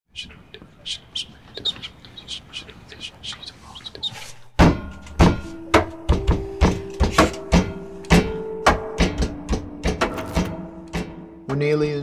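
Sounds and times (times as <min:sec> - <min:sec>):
percussive beat: 0:04.6 - 0:11.5
held chord: 0:04.7 - 0:12.0.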